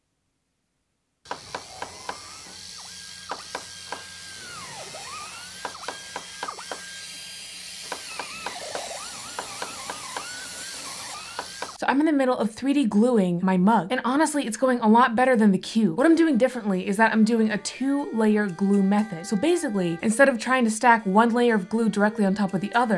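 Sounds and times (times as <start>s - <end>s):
glue gun trigger clicking: 7.8s - 11.8s.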